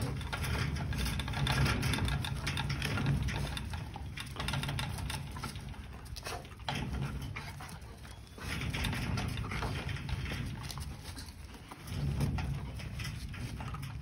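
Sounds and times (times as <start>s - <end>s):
light clicking and rattling: 0.0s - 14.0s.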